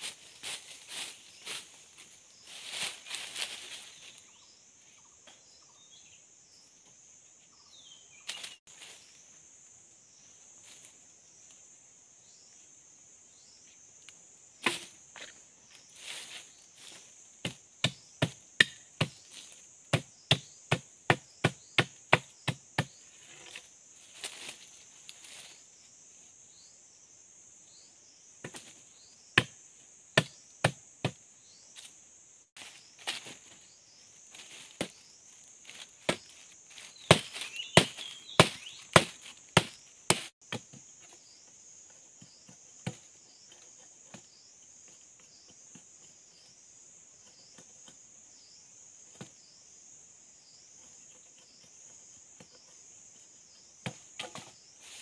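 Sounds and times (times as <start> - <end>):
high insect drone: 0.0 - 55.0
machete chopping wooden sticks: 14.6 - 15.3, 17.4 - 23.0, 29.4 - 29.6, 30.2 - 31.2, 35.7 - 40.8, 53.8 - 54.6.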